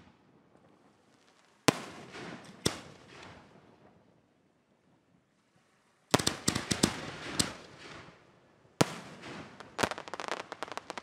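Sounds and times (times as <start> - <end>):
firework crackles: 6.1 - 8.2, 8.8 - 11.0
firework shells bursting: 9.6 - 11.0.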